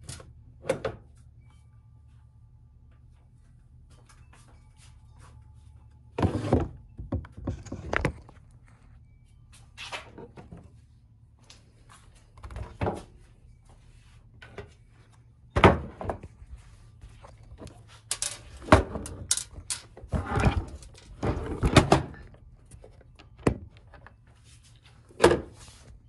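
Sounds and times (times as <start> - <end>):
plastic parts knocking and clattering: 18.1 - 22.3.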